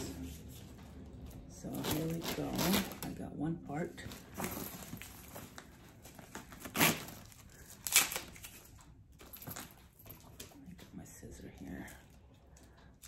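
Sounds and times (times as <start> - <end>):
plastic wrapping rustling: 0.0 - 10.5
wrapping crinkling tears: 6.3 - 8.9.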